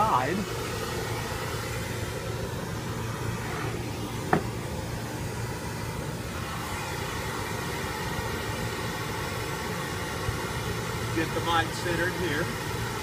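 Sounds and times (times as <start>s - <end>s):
steady rushing noise: 0.0s - 13.0s
speaker knocking on table: 4.3s - 4.5s.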